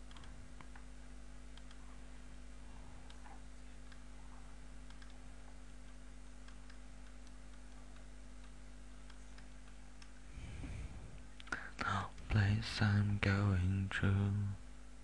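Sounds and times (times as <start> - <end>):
faint ticks and clicks: 0.0 - 0.9, 1.5 - 2.0, 3.0 - 10.3
low electrical hum: 0.0 - 15.0.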